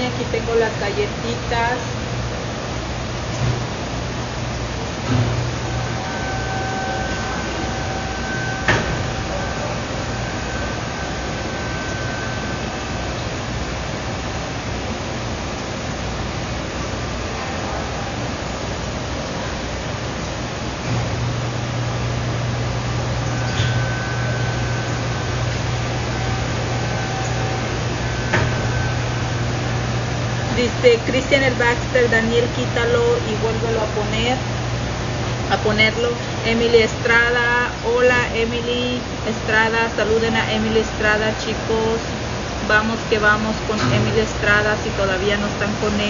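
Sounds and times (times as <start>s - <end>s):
constant hiss: 0.0s - 46.0s
faint high whine: 0.0s - 46.0s
low hum: 0.0s - 46.0s
faint high-pitched tone: 5.6s - 13.6s, 23.0s - 34.5s.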